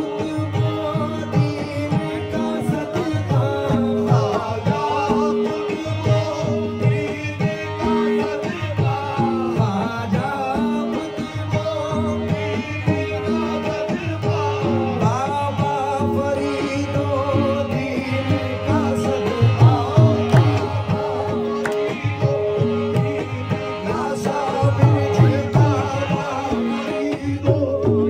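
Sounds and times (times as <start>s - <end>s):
harmonium notes: 0.0s - 28.0s
tabla beat: 0.0s - 28.0s.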